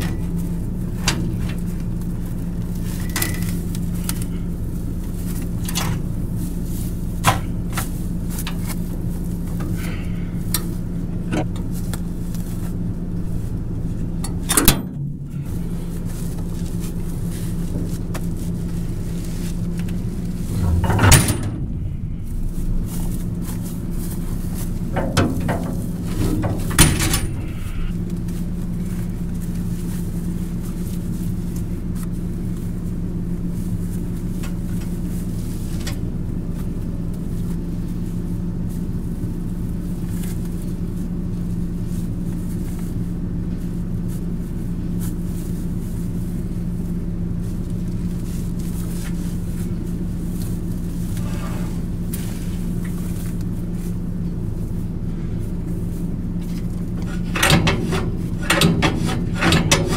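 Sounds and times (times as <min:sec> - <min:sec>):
metal clunks and rattles: 0:00.0 - 0:01.7, 0:05.4 - 0:06.3, 0:09.5 - 0:11.8, 0:13.2 - 0:16.6, 0:19.6 - 0:28.0, 0:56.4 - 0:59.9
tractor engine idling: 0:00.0 - 0:59.9.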